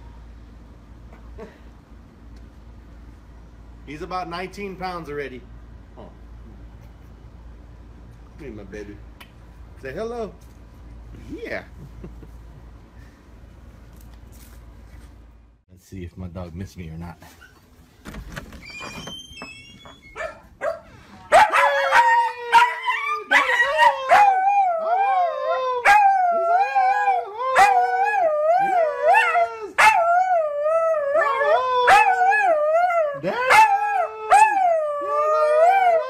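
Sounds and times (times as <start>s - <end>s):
puppy howling: 21.4s - 36.0s.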